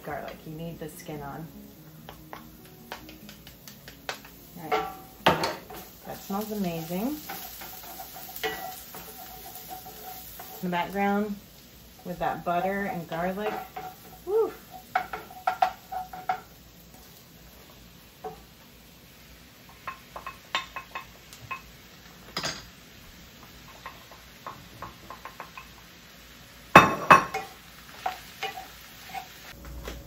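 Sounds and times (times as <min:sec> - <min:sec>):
utensil clinking against pan: 0:07.2 - 0:10.6.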